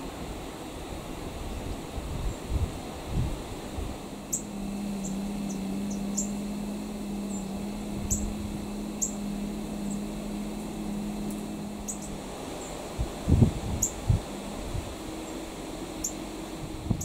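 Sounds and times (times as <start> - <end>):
steady low hum: 0.0 - 17.0
small bird chip notes: 4.2 - 12.9, 13.8 - 16.7.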